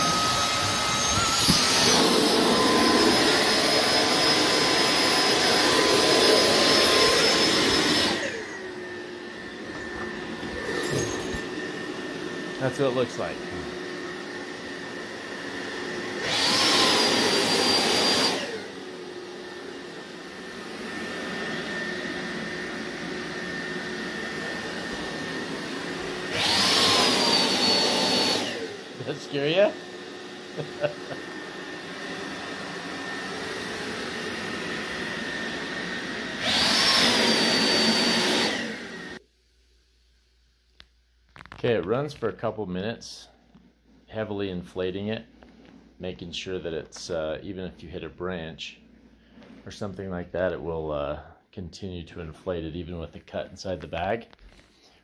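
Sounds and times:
electric fan whining: 0.0s - 39.2s.

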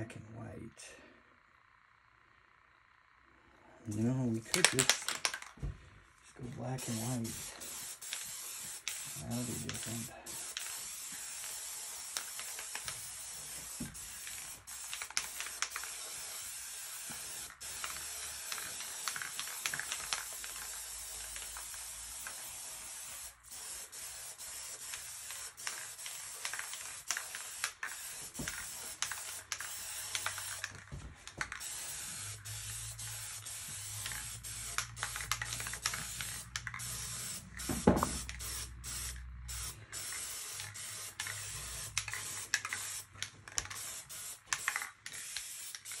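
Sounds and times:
small clicks: 4.5s - 5.6s
spray paint can hissing: 6.8s - 46.0s.

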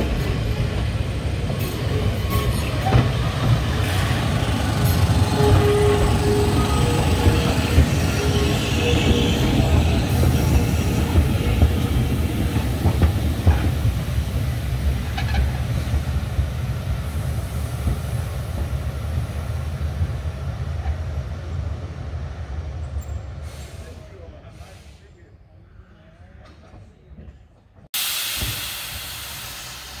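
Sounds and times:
tram wheels clicking: 0.0s - 20.3s
tram rumbling: 0.0s - 30.0s.

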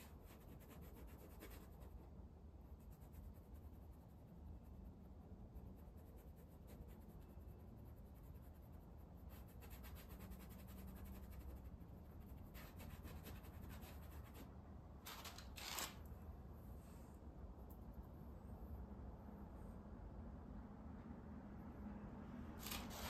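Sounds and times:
paintbrush scratching on canvas: 0.0s - 14.6s.

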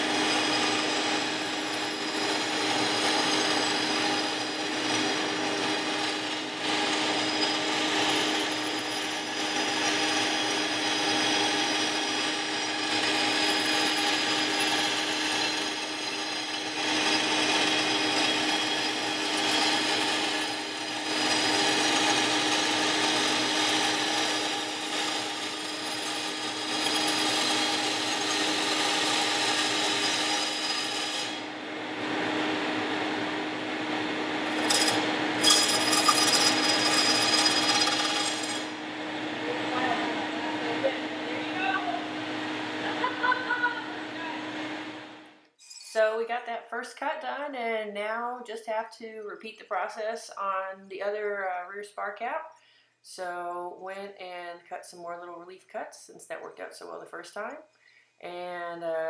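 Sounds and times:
saw blade rasping through metal: 0.0s - 31.5s, 34.5s - 38.8s
sharp metal scrapes: 0.0s - 31.5s, 34.5s - 38.8s
band saw humming: 0.0s - 45.1s.

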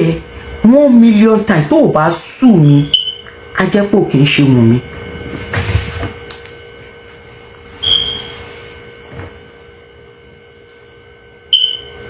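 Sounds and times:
low electrical hum: 0.0s - 12.0s
short high-pitched beep: 7.8s - 8.4s, 11.5s - 11.9s.

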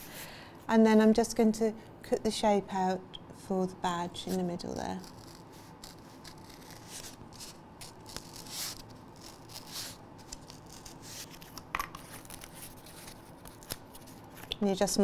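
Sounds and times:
blade cutting through foam: 4.7s - 11.4s.

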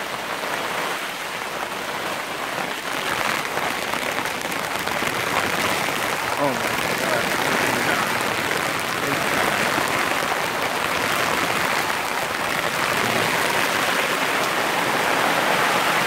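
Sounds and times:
rain on plastic tarp: 0.0s - 16.0s
rain splashing on concrete: 0.0s - 16.0s.

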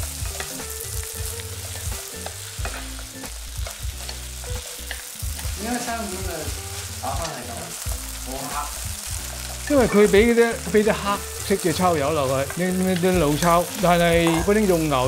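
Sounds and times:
noodles sizzling in a wok: 0.0s - 15.0s
utensils scraping a pan: 0.1s - 10.8s.

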